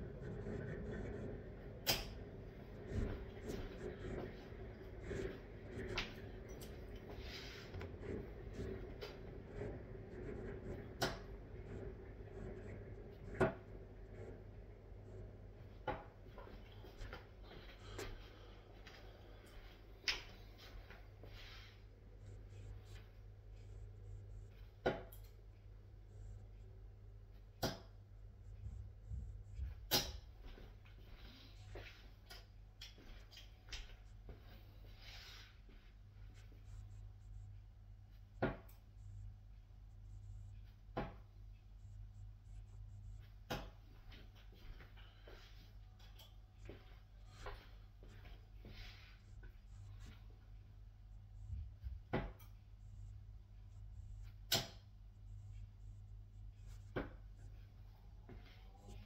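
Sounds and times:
darts thudding into dartboard: 41.0 - 41.2.

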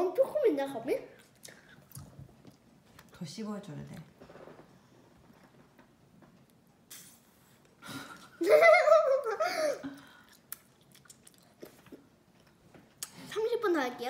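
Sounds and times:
girl chewing gum: 1.2 - 2.7, 9.8 - 13.2
girl giggling high-pitched: 8.2 - 10.0.

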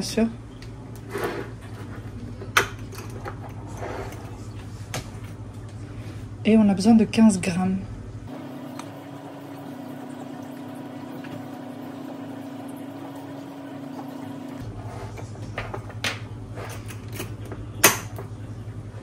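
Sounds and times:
electrical hum: 0.0 - 19.0
utensils and bowls clinking: 1.2 - 4.6, 14.0 - 18.3.

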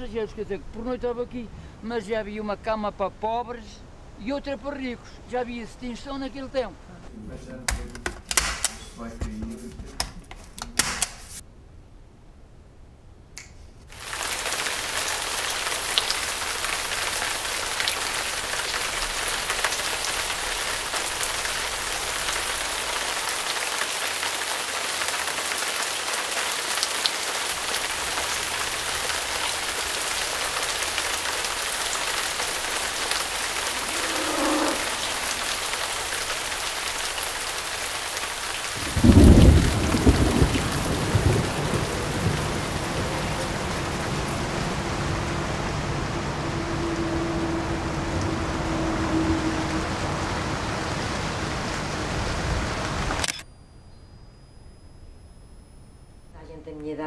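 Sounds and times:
steady rain hiss: 0.0 - 53.4
staple gun snaps: 8.3 - 8.8.

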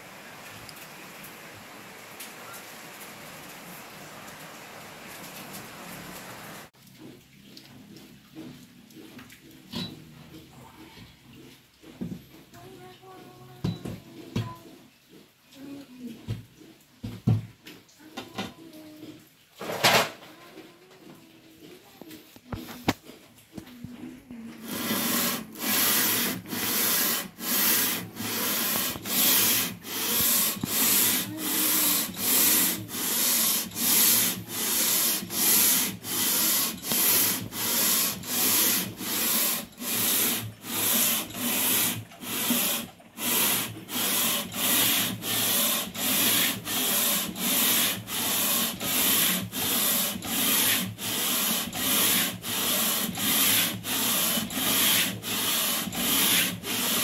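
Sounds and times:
metal rasping on sandpaper: 24.6 - 57.0.

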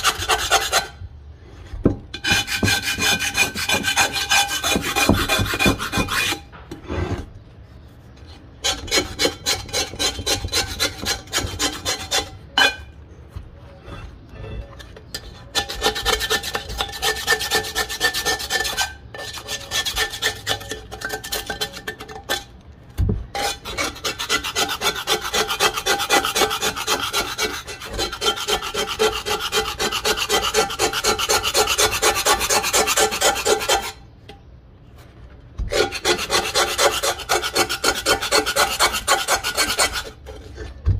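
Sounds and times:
knife scraping cast iron pot: 0.0 - 1.0, 2.1 - 7.4, 8.2 - 13.0, 13.7 - 22.6, 23.3 - 34.5, 35.7 - 40.8.

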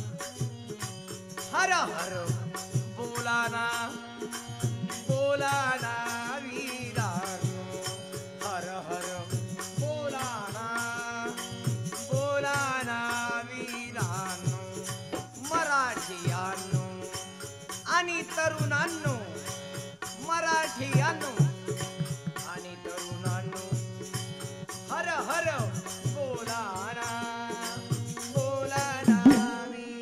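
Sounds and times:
drum beats: 28.8 - 29.8
person singing: 29.0 - 30.0.

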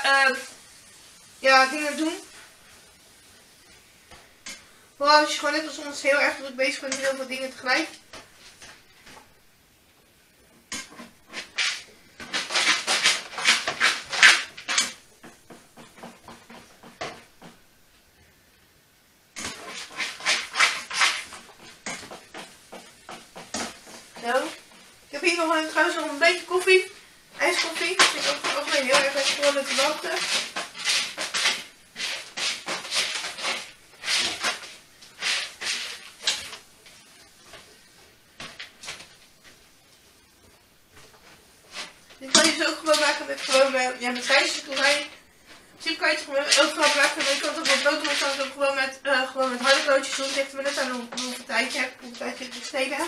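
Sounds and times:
utensil scraping frying pan: 10.4 - 17.6, 19.4 - 39.6, 41.0 - 53.0
knocks and scrapes at stove: 10.4 - 17.7, 19.4 - 39.6, 40.9 - 53.0
utensil tapping pan: 10.5 - 17.6, 19.4 - 37.7, 41.7 - 45.2, 45.9 - 53.0.

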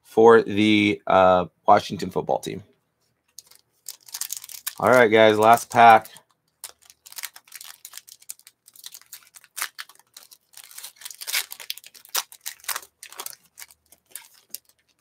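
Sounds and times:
wrapper crinkling as torn open: 3.4 - 15.0.

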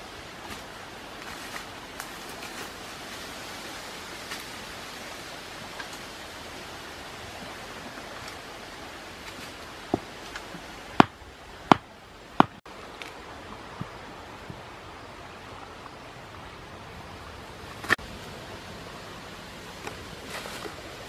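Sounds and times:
steady rushing hiss: 0.0 - 21.0.

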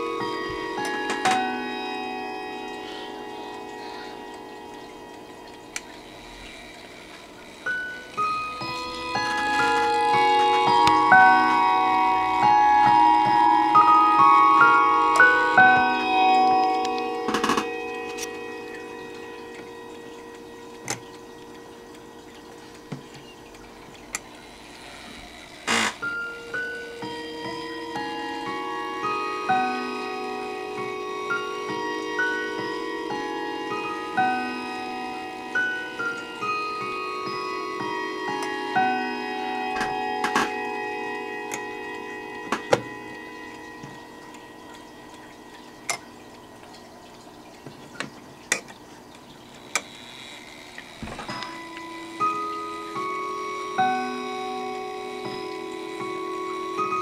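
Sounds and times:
chime rods ringing faintly: 0.0 - 24.9
clock chime ringing: 0.0 - 47.7, 50.9 - 57.0.

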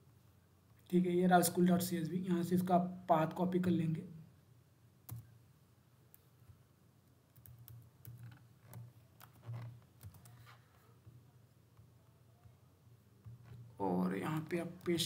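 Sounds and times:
computer keyboard typing: 7.3 - 9.4, 10.0 - 10.5.

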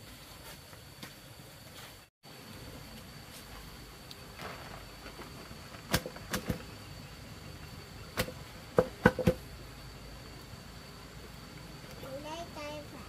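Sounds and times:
sharp knocks: 8.2 - 9.4.

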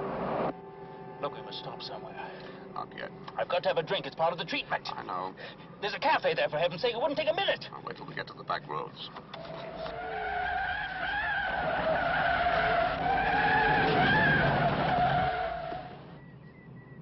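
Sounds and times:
car tyres squealing in a skid: 9.4 - 16.2.

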